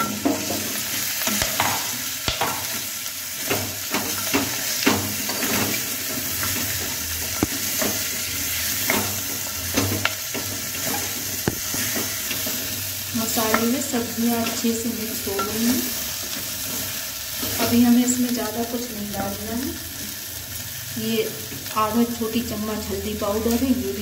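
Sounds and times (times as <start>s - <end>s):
vegetables sizzling in hot oil: 0.0s - 24.0s
wooden spatula knocking on pot: 11.4s - 12.1s.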